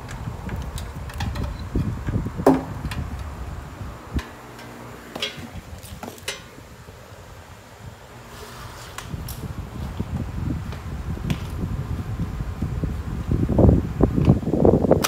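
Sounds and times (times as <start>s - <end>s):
handling rumbling and rubbing: 0.0s - 7.2s, 8.0s - 14.6s
clicks and knocks: 4.2s - 6.5s.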